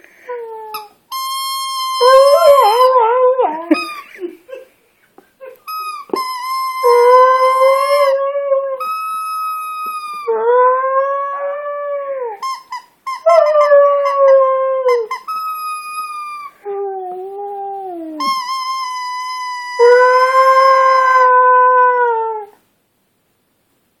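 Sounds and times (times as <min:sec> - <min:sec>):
squeaky toy ball squealing: 0:00.7 - 0:03.0, 0:03.7 - 0:04.1, 0:05.6 - 0:08.1, 0:08.8 - 0:10.4, 0:12.4 - 0:16.6, 0:18.2 - 0:21.3.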